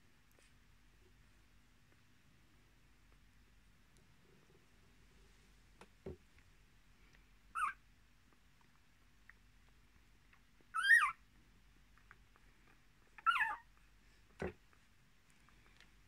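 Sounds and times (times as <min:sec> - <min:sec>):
puppy squeaking: 0:07.6 - 0:07.8, 0:10.7 - 0:11.2, 0:13.1 - 0:13.7.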